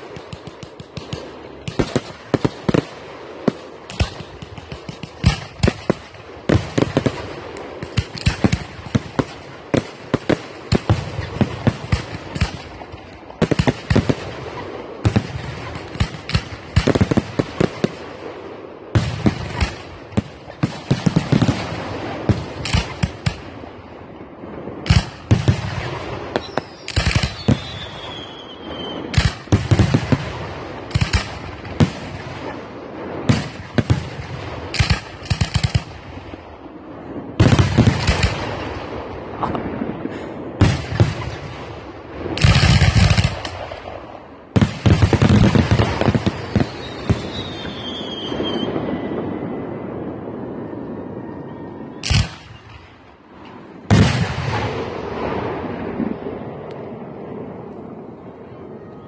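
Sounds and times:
firework crackle: 0:00.0 - 0:51.0
falling whistle: 0:26.4 - 0:29.1, 0:46.6 - 0:49.7.

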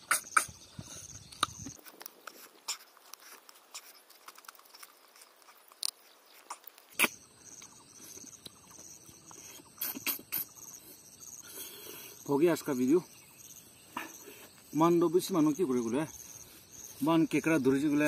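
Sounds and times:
man chewing and sucking fingers: 0:00.0 - 0:10.6.

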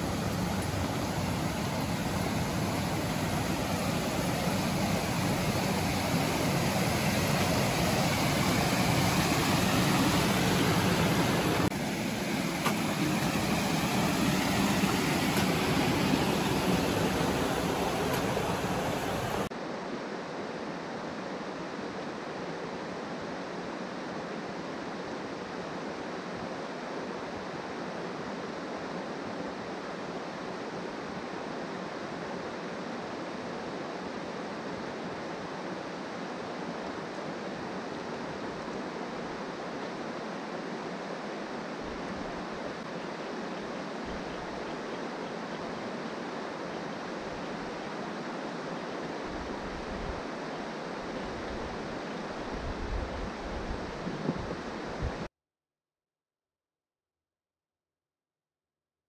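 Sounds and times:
flowing creek water: 0:00.0 - 0:19.5, 0:21.4 - 0:55.3.

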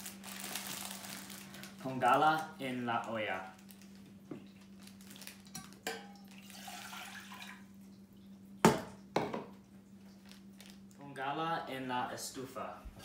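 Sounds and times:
water pouring into saucepan: 0:06.3 - 0:07.7.

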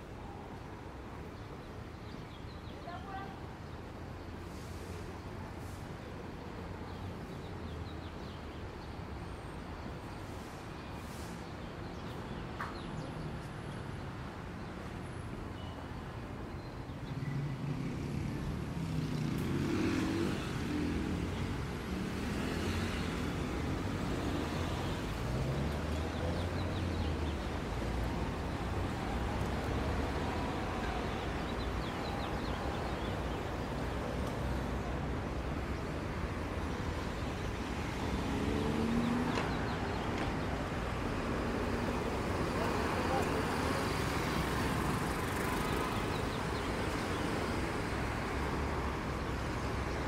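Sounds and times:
traffic hum: 0:00.0 - 0:50.0
vehicle engines passing close: 0:17.1 - 0:50.0.

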